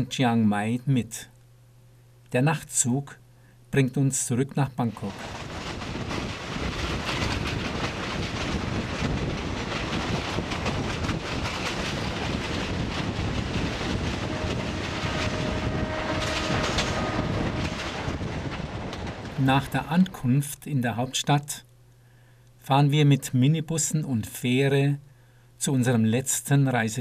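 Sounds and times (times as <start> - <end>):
faint steady whine: 0.0 - 5.3
train wheels clattering: 5.0 - 20.2.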